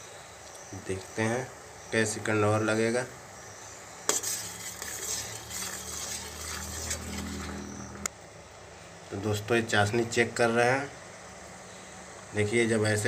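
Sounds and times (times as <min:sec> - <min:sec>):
metal ladle scraping a pan: 0:04.1 - 0:08.1
syrup bubbling: 0:04.1 - 0:08.1.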